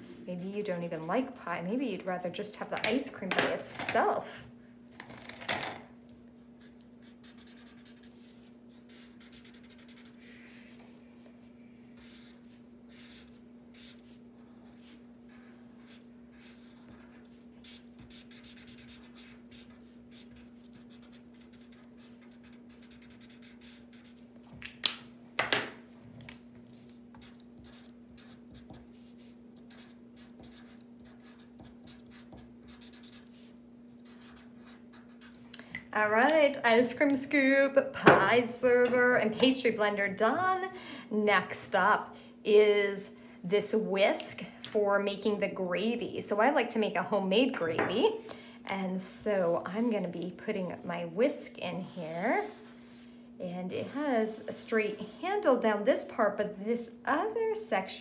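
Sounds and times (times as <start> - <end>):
steady low hum: 0.0 - 58.0
markers scratching on paper: 6.6 - 10.7, 12.0 - 24.2, 26.7 - 35.4.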